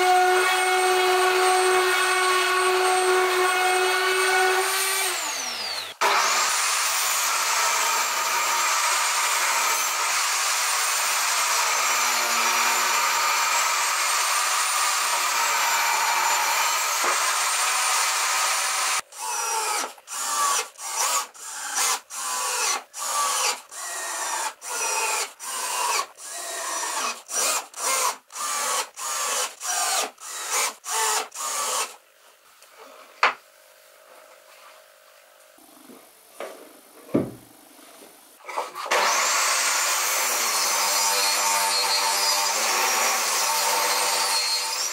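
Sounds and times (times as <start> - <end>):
drill driving screws: 0.1 - 32.0, 38.5 - 44.9
knock: 37.1 - 37.5.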